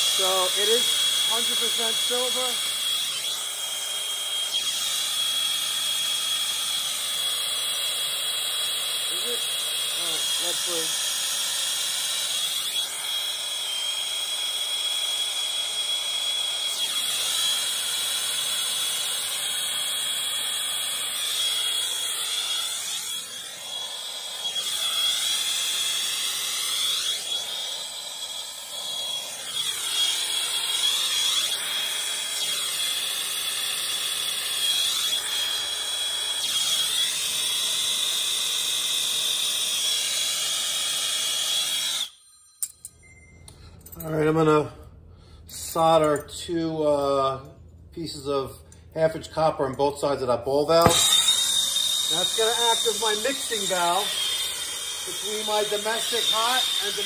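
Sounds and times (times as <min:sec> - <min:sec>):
torch flame hissing: 0:00.0 - 0:02.6, 0:07.8 - 0:10.9, 0:50.8 - 0:57.0.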